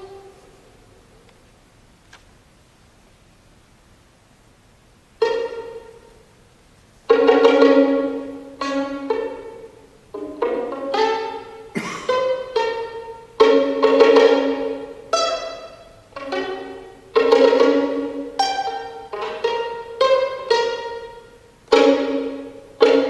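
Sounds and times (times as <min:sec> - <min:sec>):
violin plucked pizzicato: 0:00.0 - 0:00.6, 0:05.1 - 0:06.3, 0:07.0 - 0:23.0.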